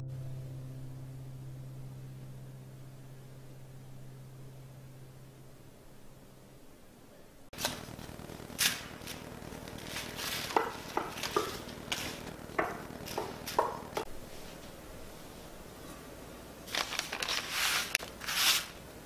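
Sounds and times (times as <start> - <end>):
coffee grounds spilling onto paper: 7.6 - 13.7, 16.7 - 18.8.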